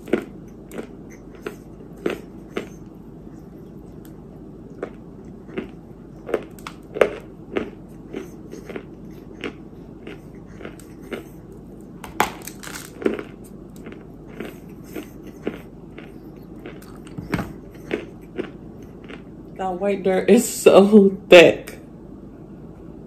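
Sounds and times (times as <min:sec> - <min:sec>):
biting and chewing clay: 0:00.0 - 0:19.3
dry crunches and snaps: 0:06.3 - 0:07.3, 0:10.1 - 0:14.6.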